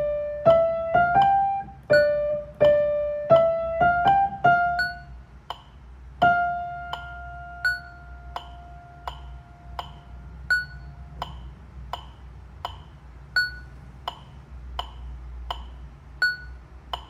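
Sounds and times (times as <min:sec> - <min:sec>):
held keyboard note: 0:00.0 - 0:05.6, 0:06.2 - 0:11.4
higher metronome ping: 0:00.0 - 0:17.0
metronome ticking: 0:00.0 - 0:17.0.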